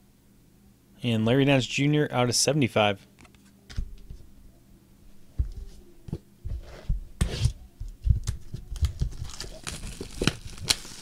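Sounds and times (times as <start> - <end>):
faint steady hum: 0.0 - 11.0
card packs rustling: 8.3 - 11.0.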